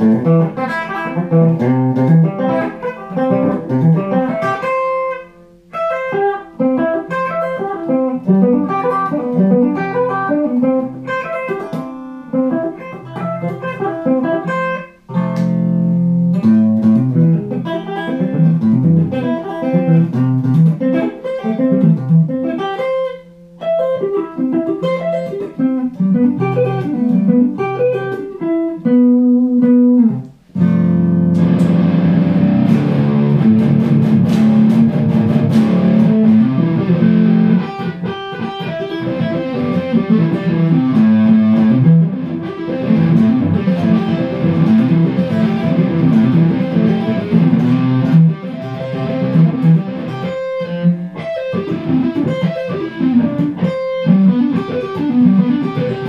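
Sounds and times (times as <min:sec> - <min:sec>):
amplified electric guitar playing: 0:00.0 - 0:56.0.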